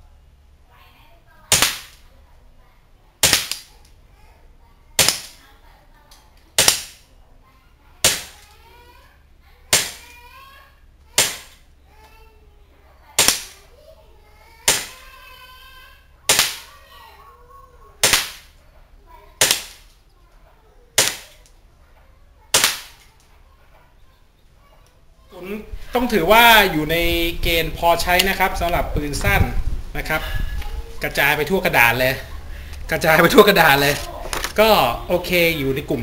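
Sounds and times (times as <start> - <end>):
airsoft pistol shots: 1.5 - 2.0, 3.2 - 3.7, 5.0 - 5.4, 6.6 - 7.0, 8.0 - 8.4, 9.7 - 10.0, 11.2 - 11.6, 13.2 - 13.6, 14.7 - 15.0, 16.3 - 16.7, 18.0 - 18.5, 19.4 - 19.9, 21.0 - 21.4, 22.5 - 23.0.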